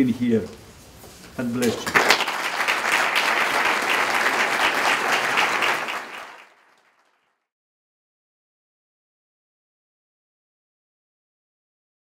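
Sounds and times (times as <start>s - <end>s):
audience applauding: 1.7s - 7.4s.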